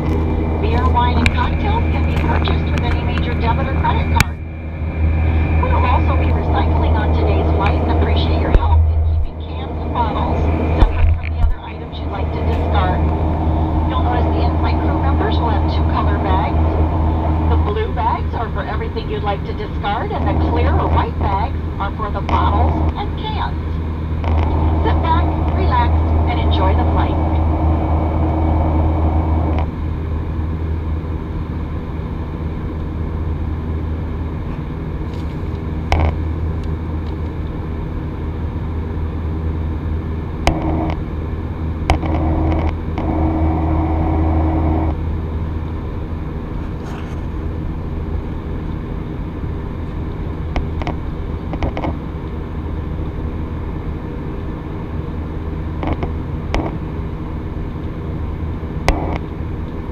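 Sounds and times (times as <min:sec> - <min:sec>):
rushing airflow: 0:00.0 - 0:18.5, 0:23.7 - 0:29.6
jet engine drone: 0:00.0 - 0:59.9.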